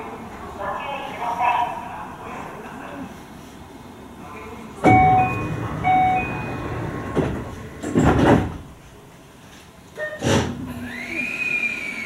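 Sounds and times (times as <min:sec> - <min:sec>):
train doors closing with thuds: 0:04.8 - 0:09.1, 0:10.0 - 0:10.7
electric train motor whine: 0:04.9 - 0:08.8, 0:10.7 - 0:12.0.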